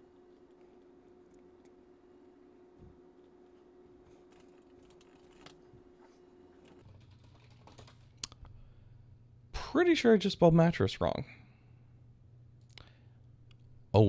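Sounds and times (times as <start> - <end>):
faint steady hum: 0.0 - 14.0
typing on computer keyboard: 6.8 - 8.4.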